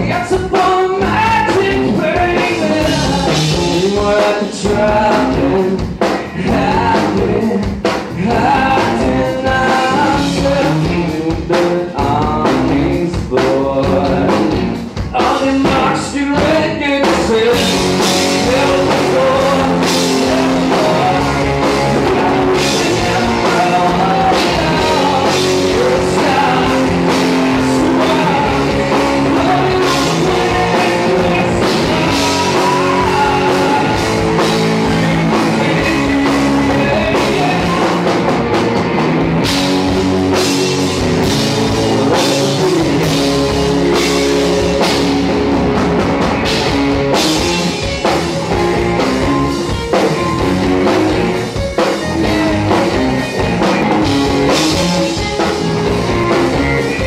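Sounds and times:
person singing: 0.0 - 38.6, 39.8 - 45.3
bass guitar: 0.0 - 57.0
drum kit: 0.0 - 57.0
electric guitars: 0.0 - 57.0.

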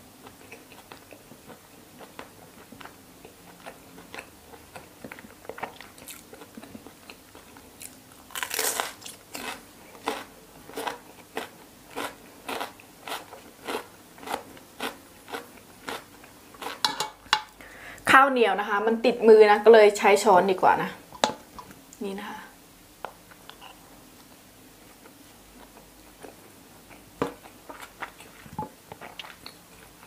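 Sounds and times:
soft chewing: 0.2 - 17.1, 23.0 - 30.0
crunching bite and chews: 0.3 - 16.9.

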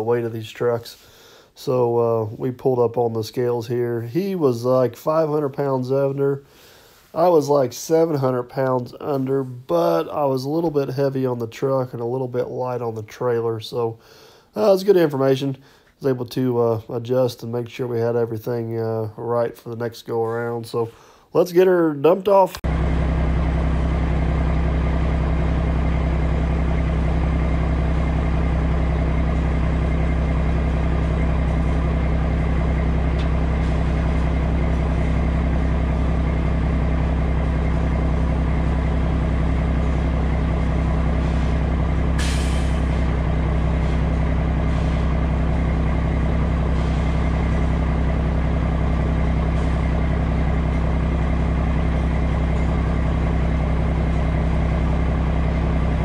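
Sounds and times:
diesel truck engine running: 22.6 - 56.0
air hiss: 42.2 - 43.1.

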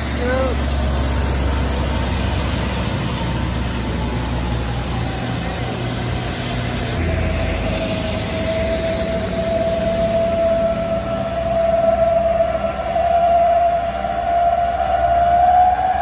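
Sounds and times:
trucks and motorcycles passing: 0.0 - 16.0.

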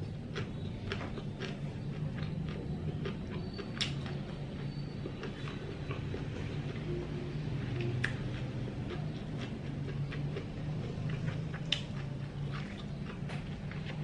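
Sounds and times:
close-up chewing: 0.0 - 14.0
steady low hum: 0.0 - 14.0.

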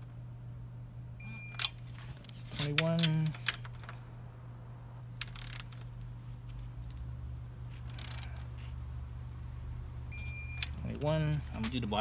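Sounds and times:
ratchet wrench clicking: 5.2 - 5.8, 7.8 - 8.4.

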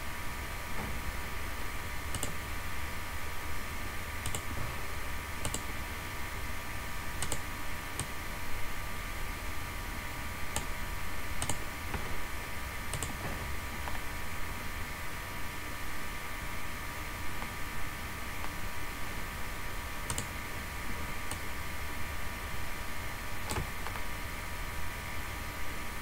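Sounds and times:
electrical hum: 0.0 - 26.0
computer mouse clicking: 2.1 - 2.4, 4.2 - 4.5, 5.4 - 5.7, 7.2 - 7.4, 10.5 - 10.7, 11.4 - 11.6, 12.9 - 13.2, 20.1 - 20.3, 23.5 - 24.1.

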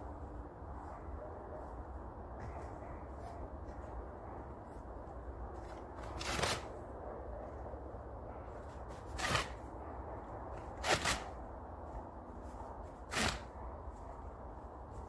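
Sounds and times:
steady low rumble: 0.0 - 15.0
blade scraping into firewood: 5.7 - 6.7, 8.9 - 9.7, 10.6 - 11.4, 13.0 - 13.6.

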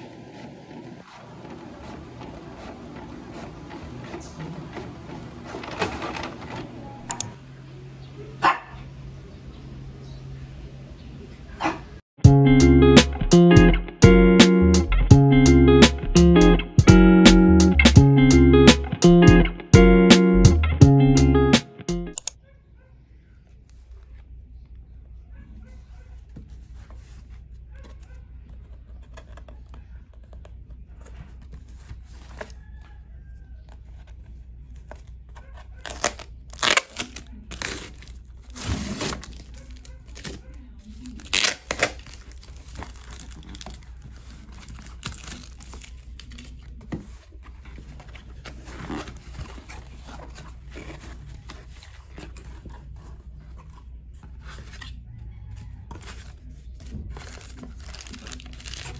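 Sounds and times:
cardboard rustling: 0.0 - 7.0, 25.8 - 58.9
packing tape ripping: 35.8 - 46.6, 57.2 - 58.9.

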